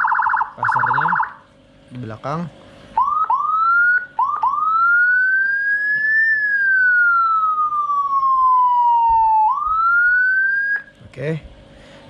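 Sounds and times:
electronic siren wailing: 0:00.0 - 0:01.5, 0:03.0 - 0:10.9.

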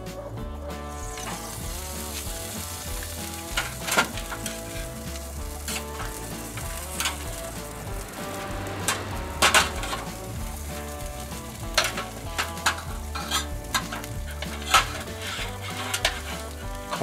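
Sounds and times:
metal tongs clinking on pan: 0:11.8 - 0:17.0.

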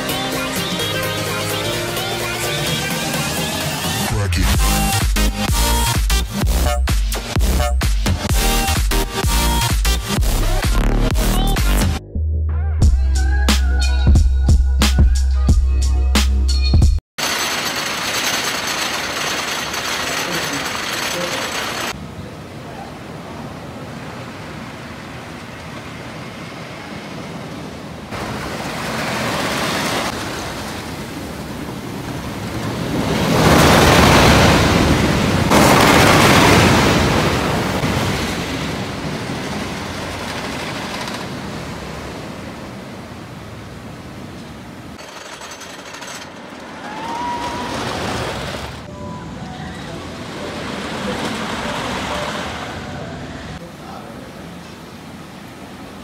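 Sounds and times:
roller coaster train rattling on track: 0:17.2 - 0:22.0, 0:29.4 - 0:42.1, 0:45.0 - 0:53.6.

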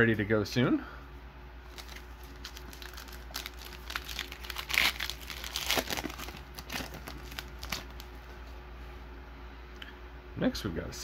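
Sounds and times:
foil wrapper crinkling: 0:01.7 - 0:08.3.

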